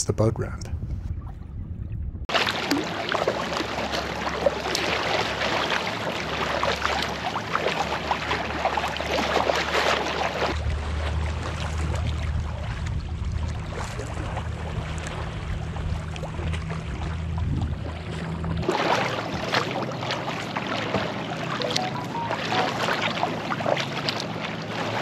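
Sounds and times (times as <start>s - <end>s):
low steady rumble: 0.0s - 18.7s
paddle water splashing: 2.3s - 25.0s.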